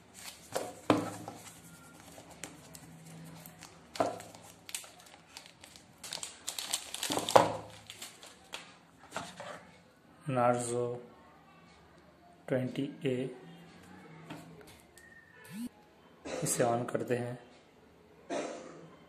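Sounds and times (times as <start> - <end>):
plastic wrapping crinkling: 1.4 - 8.7.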